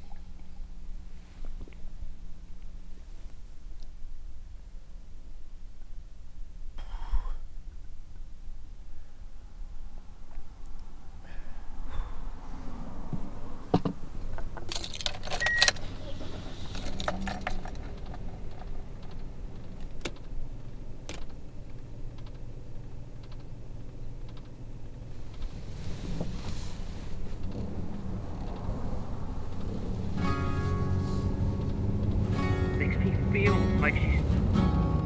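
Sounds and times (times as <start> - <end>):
low rumble inside car: 0.0 - 35.0
keys jangling: 14.6 - 20.3
sharp clicks: 17.9 - 20.3, 23.2 - 23.6.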